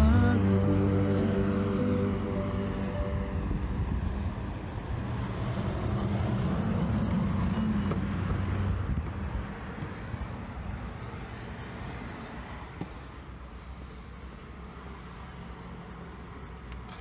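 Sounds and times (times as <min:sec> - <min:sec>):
vehicle passing: 0:00.0 - 0:13.1
road traffic going by: 0:00.0 - 0:17.0.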